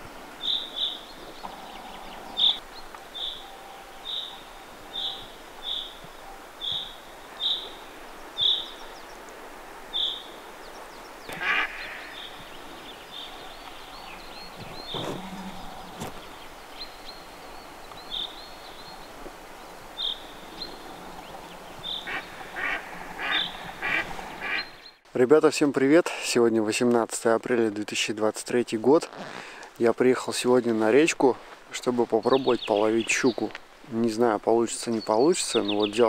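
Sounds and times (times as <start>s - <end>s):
ducks quacking: 11.3s - 12.3s, 21.8s - 24.8s.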